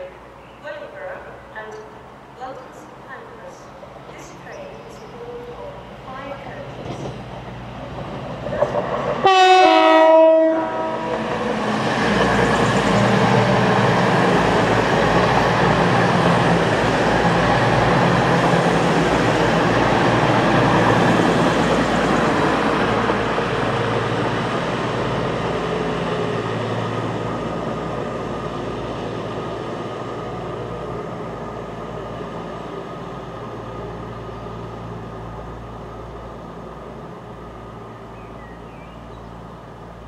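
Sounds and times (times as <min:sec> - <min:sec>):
train passing at speed: 0:00.0 - 0:40.0
train horn blast: 0:09.2 - 0:11.3.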